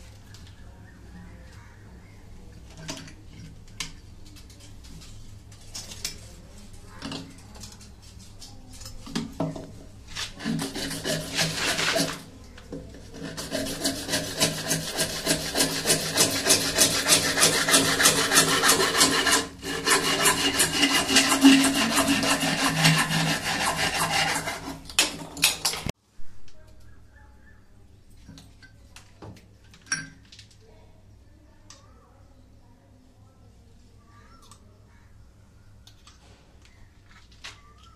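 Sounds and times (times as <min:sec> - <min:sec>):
hacksaw cutting plastic pipe: 0:10.3 - 0:12.3, 0:13.1 - 0:25.8.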